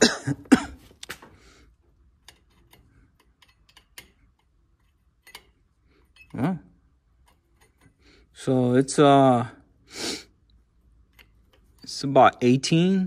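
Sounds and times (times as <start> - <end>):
metal gauge clicking on tube: 2.2 - 6.4, 11.0 - 12.1.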